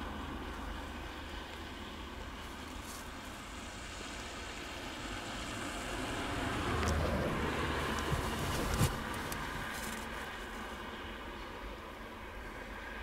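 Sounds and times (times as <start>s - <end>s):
traffic rumble: 0.0s - 13.0s
vehicle passing: 3.6s - 11.2s.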